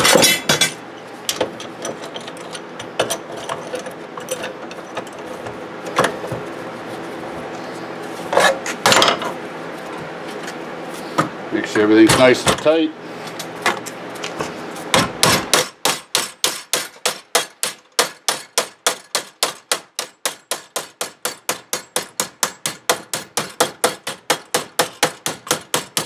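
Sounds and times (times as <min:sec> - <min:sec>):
hammer striking metal plate: 0:15.0 - 0:26.0.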